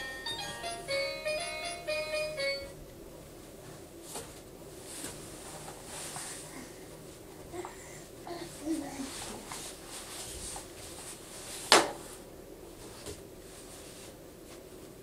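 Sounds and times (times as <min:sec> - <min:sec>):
faint rustling: 0:03.2 - 0:15.0.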